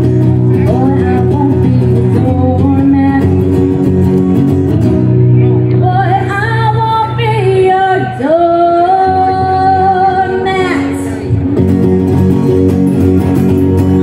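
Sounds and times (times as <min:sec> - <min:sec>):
strummed acoustic guitars: 0:00.0 - 0:14.0
person singing: 0:00.4 - 0:03.7.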